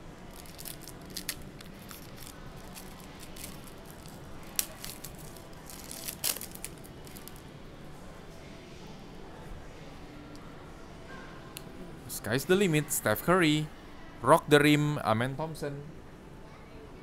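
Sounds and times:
foil wrapper crackling: 0.3s - 7.4s.

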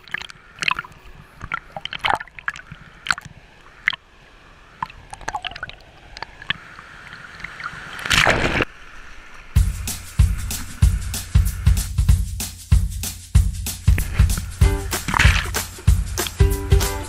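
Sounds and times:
water sloshing and gurgling: 0.0s - 9.0s
waves slapping and splashing: 15.0s - 15.8s.

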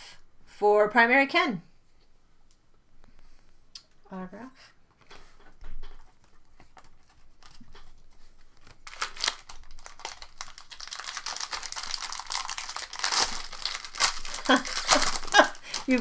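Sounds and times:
foil wrapper crinkling and tearing: 6.6s - 16.0s.

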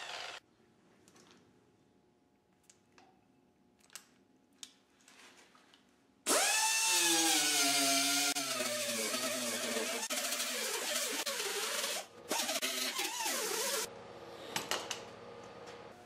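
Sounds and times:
die grinder whine on steel: 0.0s - 0.4s.

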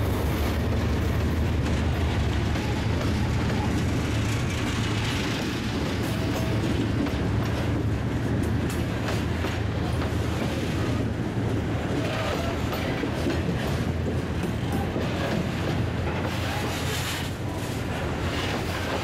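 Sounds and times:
steel wheels rumbling on rail: 0.0s - 19.0s
wheels and couplings clacking: 0.0s - 19.0s.

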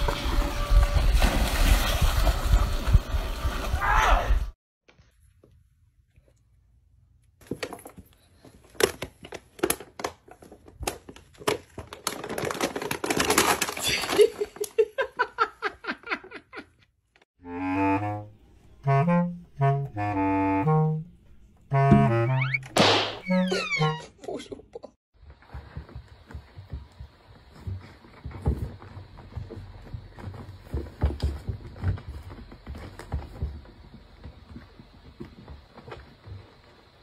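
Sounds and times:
paper bag rustling: 10.2s - 14.6s.

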